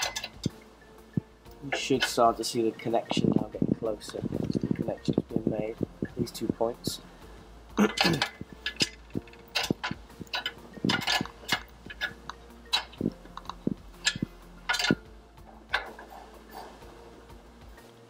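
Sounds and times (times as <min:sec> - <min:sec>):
spanner clicking against metal: 0:07.9 - 0:15.0, 0:15.7 - 0:16.1.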